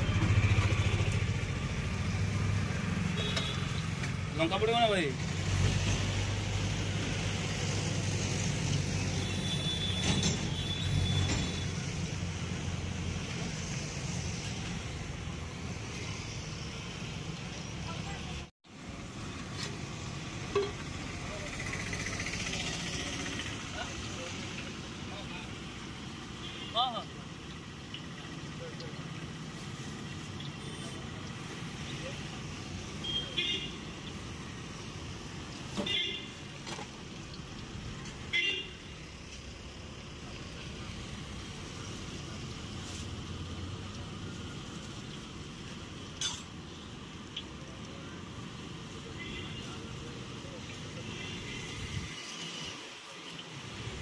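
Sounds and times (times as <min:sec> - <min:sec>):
road traffic rumble and hiss: 0:00.0 - 0:54.0.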